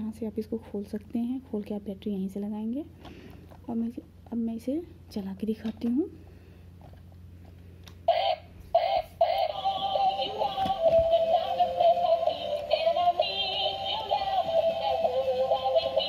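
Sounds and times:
electronic toy tune: 8.1s - 16.0s.

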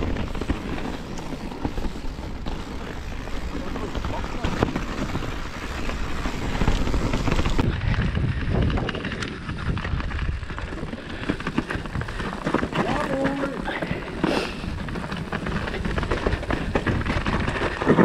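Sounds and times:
bike chain and frame rattling: 0.0s - 18.0s
bike tyres rolling on dirt: 0.0s - 18.0s
wind rumble on microphone: 0.0s - 18.0s.

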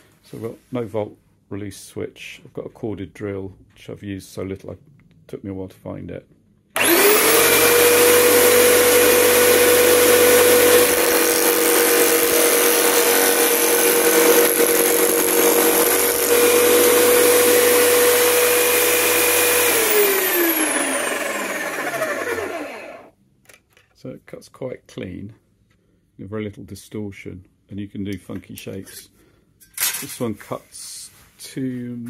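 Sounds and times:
electric drill motor whining: 6.8s - 23.1s.

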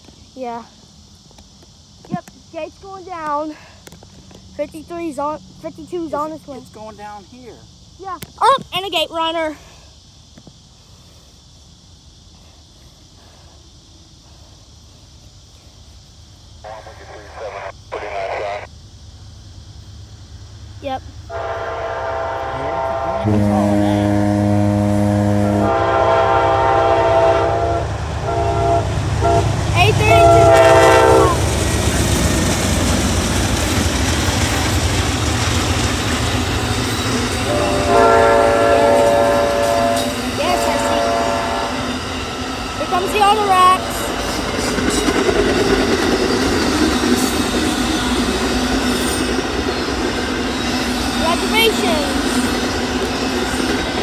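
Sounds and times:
locomotive air horn blasts: 21.3s - 31.4s, 37.4s - 41.9s
train wheels on rails: 25.6s - 54.0s.

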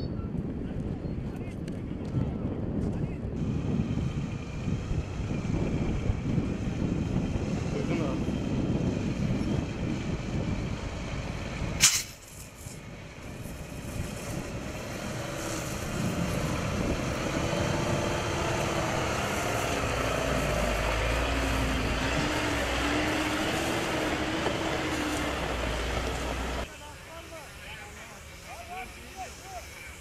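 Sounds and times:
fire truck engine running: 3.4s - 11.8s, 12.6s - 28.7s
fire hose spraying water: 11.8s - 30.0s.

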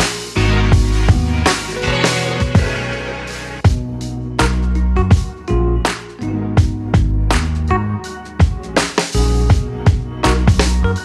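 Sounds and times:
background music with drums and bass: 0.0s - 11.0s.

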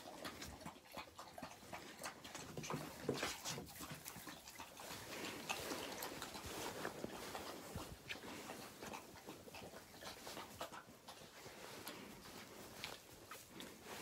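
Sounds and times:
puppies snuffling: 0.0s - 14.0s
puppies rustling in straw: 4.6s - 14.0s.

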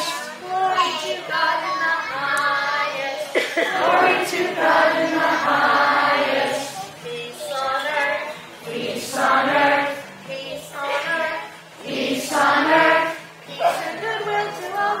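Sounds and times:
woman singing: 0.0s - 5.6s, 7.0s - 11.5s, 12.1s - 15.0s
children's choir singing: 0.0s - 15.0s.

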